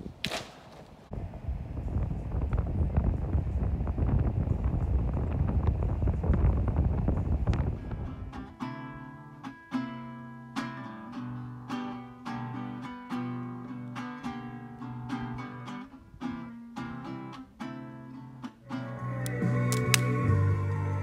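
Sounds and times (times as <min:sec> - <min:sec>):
wind on microphone: 0:00.0 - 0:08.6
acoustic guitar picking melody: 0:07.8 - 0:21.0.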